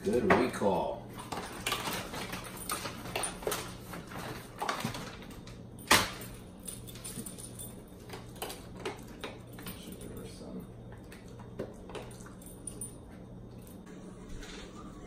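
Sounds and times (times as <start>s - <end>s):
low hum: 9.6s - 15.0s.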